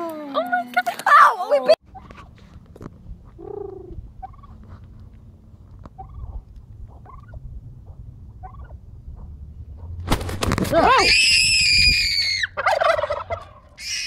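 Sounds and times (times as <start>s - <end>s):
turkey gobbling: 3.4s - 4.6s, 6.0s - 9.3s, 12.3s - 14.0s.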